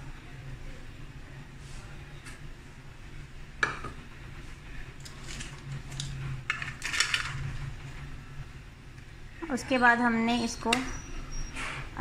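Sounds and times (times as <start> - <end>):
plastic kitchenware clattering: 5.2 - 7.4.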